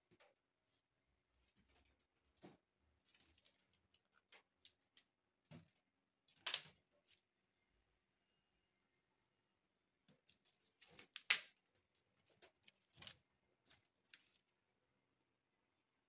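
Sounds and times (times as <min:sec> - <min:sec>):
rustling: 0:00.1 - 0:07.3, 0:10.1 - 0:14.7.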